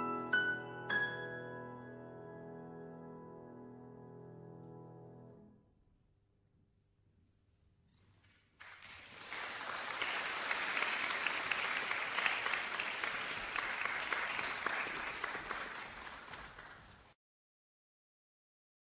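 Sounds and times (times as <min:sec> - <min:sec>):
audience applause: 0:08.5 - 0:17.2.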